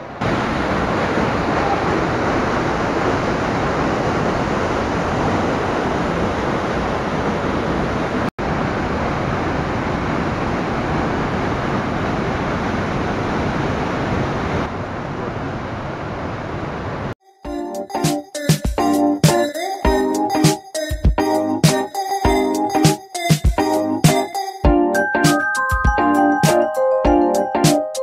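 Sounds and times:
whitewater rushing over rocks: 0.2 - 14.6.

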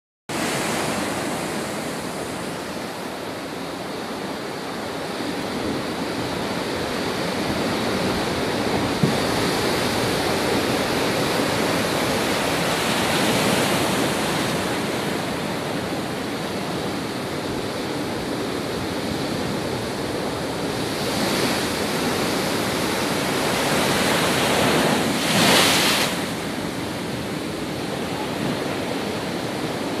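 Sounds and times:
waves breaking against pier: 0.3 - 30.0.

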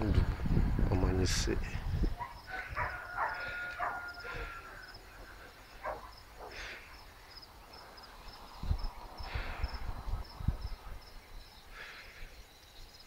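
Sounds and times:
insect chirping: 1.5 - 13.0
faint dog barks: 2.2 - 4.9, 5.8 - 6.8.

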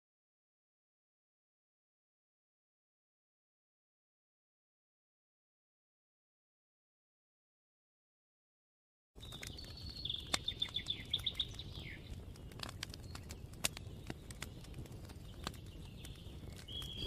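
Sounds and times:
faint outdoor background: 9.2 - 17.0
small bird chirping: 9.2 - 17.0.

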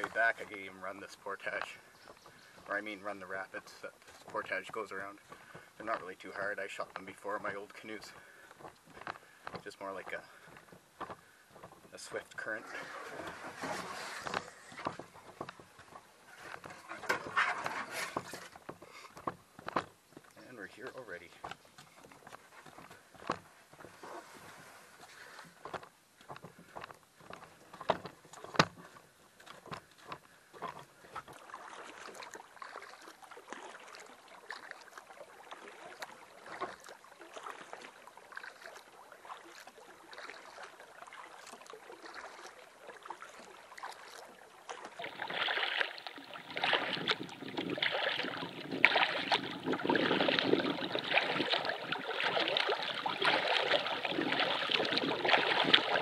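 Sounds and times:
flowing water rushing: 0.0 - 26.4, 30.6 - 56.0
canoe knocks: 0.0 - 32.8, 44.7 - 56.0
water lapping and splashing: 0.0 - 56.0.

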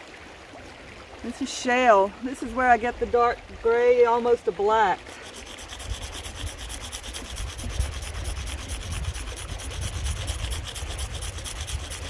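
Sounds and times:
stone scraping on stone: 5.0 - 12.0.

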